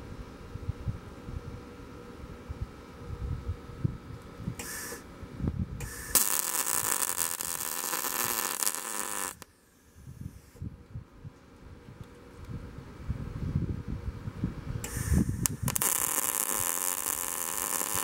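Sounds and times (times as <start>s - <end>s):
wind rumbling on microphone: 0.0s - 6.2s, 10.0s - 18.0s
welding arc crackling and hissing: 5.8s - 9.5s, 14.8s - 18.0s.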